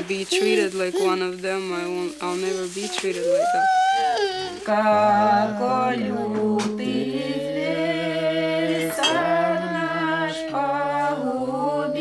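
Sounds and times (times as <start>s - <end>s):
choir singing slow chant: 4.6s - 12.0s.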